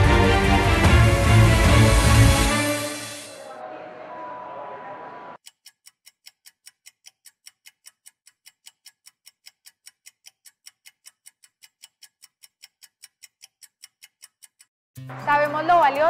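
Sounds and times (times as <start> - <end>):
clock ticking: 5.4 - 16.0.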